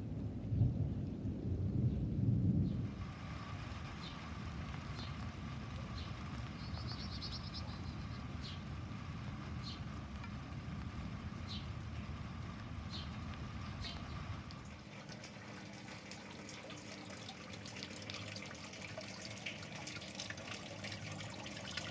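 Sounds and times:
low rumble: 0.0 - 14.8
faint hum: 0.0 - 21.9
small birds chirping: 5.9 - 8.8, 9.6 - 9.9, 11.4 - 11.8, 12.8 - 14.4
buzzy bird trill: 6.5 - 8.6.

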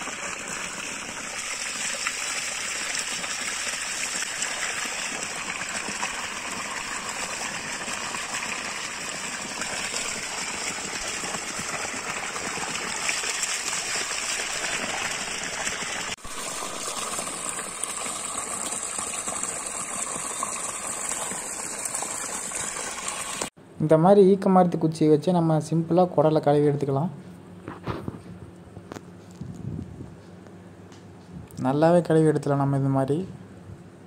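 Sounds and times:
water gushing from a pipe: 0.0 - 23.5.

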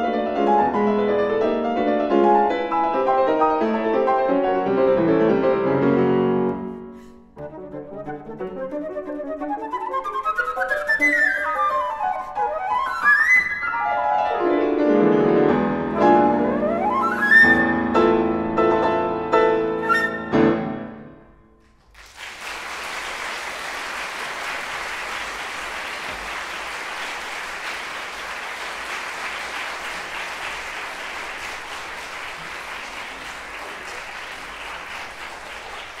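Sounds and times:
flute and piano playing: 6.6 - 20.8
audience applause: 21.8 - 36.0.

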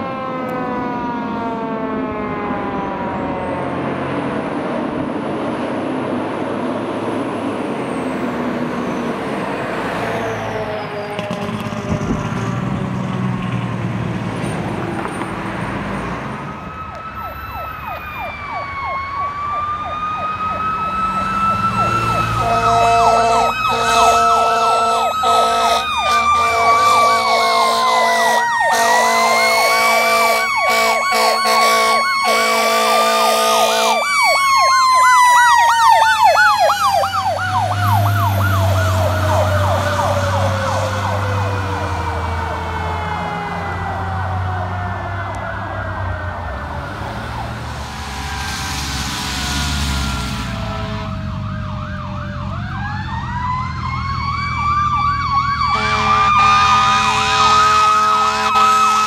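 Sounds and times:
mechanical siren wailing: 0.0 - 4.0, 7.7 - 12.8, 16.3 - 48.7, 49.4 - 59.0
truck engine rumbling: 0.0 - 59.0
electronic siren yelping: 16.5 - 48.6, 50.4 - 59.0
air horns: 22.1 - 34.1, 47.8 - 51.4, 55.7 - 59.0.

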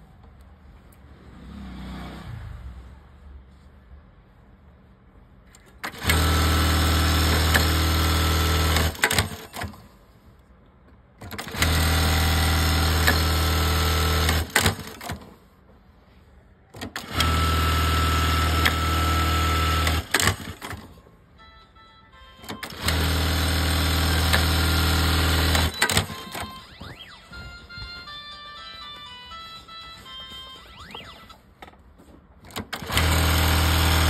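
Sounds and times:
sewing machine running: 5.8 - 9.8, 11.3 - 15.2, 16.9 - 20.9, 22.4 - 26.7, 32.5 - 34.0.

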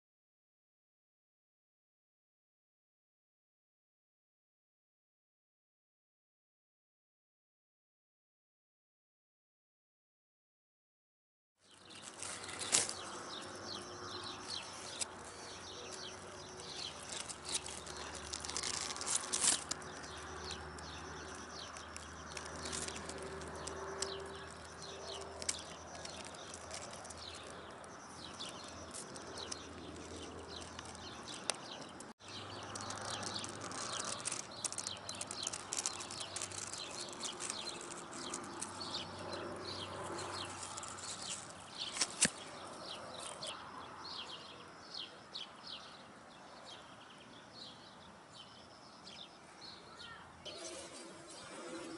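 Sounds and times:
birds chirping: 11.6 - 51.9.

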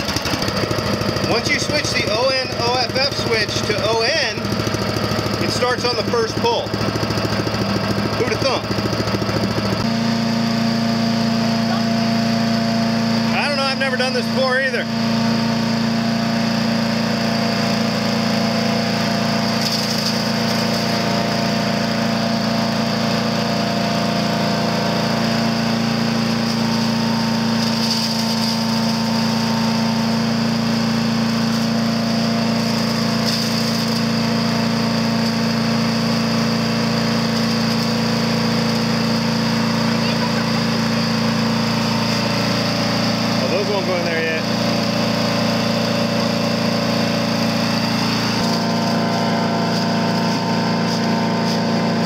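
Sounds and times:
chipper shredder engine running: 0.0 - 52.0.

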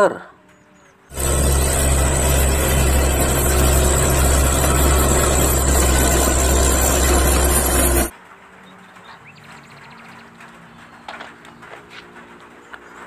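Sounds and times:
bulldozer diesel engine running: 1.1 - 8.1.

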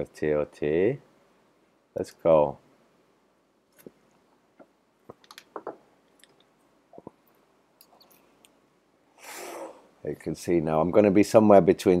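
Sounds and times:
faint short clicks and smacks: 3.7 - 8.6.

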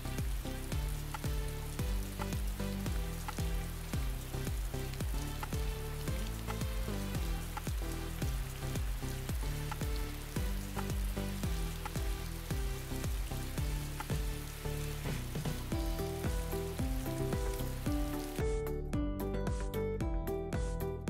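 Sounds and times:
music of low sustained notes: 0.0 - 21.0.

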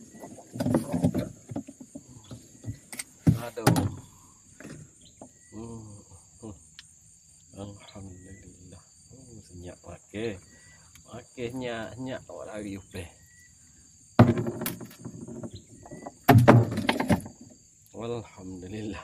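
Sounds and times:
insect trill: 0.0 - 19.0
man murmuring: 5.6 - 6.6
fishing gear knocking in boat: 14.2 - 17.4.

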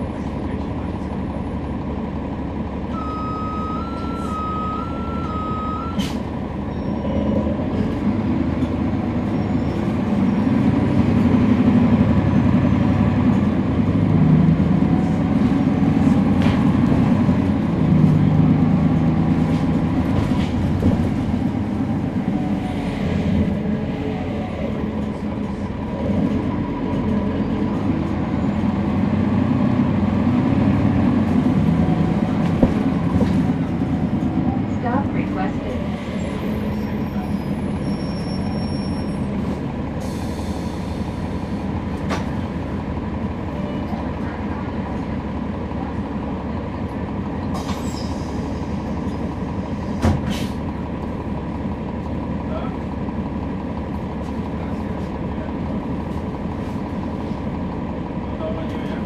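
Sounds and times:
bus transmission whine: 0.0 - 59.0
diesel engine running: 0.0 - 59.0
electronic two-note beeping: 3.0 - 6.0.

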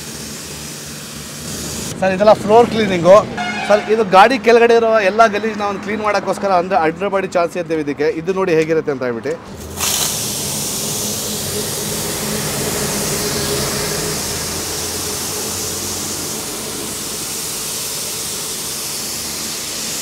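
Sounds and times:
pressure washer spray hiss: 0.0 - 2.0, 9.6 - 20.0.

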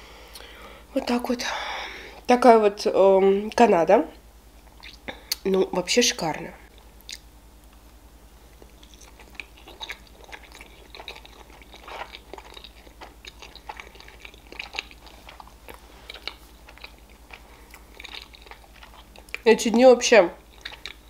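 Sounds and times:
person chewing food: 4.6 - 5.5, 7.0 - 7.8, 8.5 - 19.5, 20.4 - 21.0.

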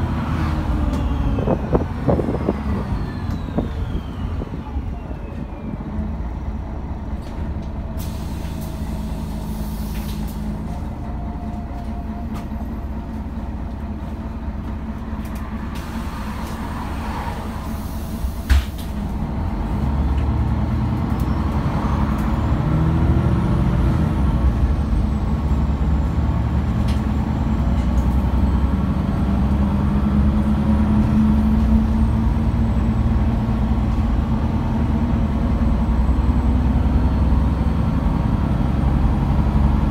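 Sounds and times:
bus engine and road drone: 0.0 - 39.9.

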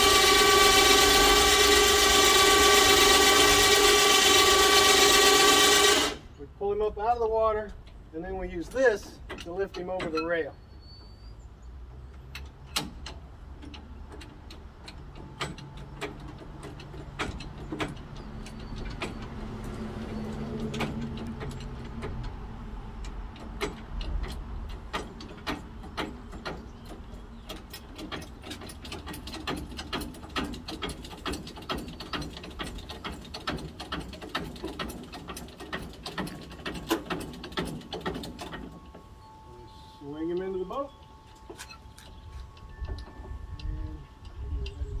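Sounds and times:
electric winch motor humming: 0.0 - 6.3
metal clicking of crane mechanism: 0.0 - 6.4, 7.1 - 10.6, 12.0 - 45.0.

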